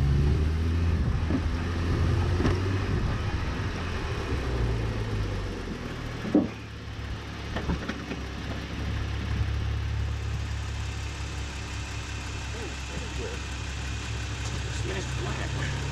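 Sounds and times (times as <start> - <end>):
car engine humming: 0.0 - 15.9
sharp knocks under a car: 6.2 - 6.7.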